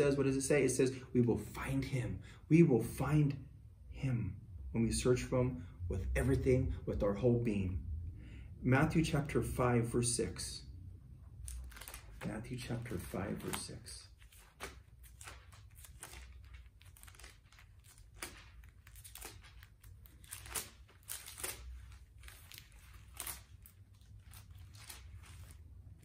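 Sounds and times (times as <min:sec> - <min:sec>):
pages turning: 0:11.4 - 0:26.0.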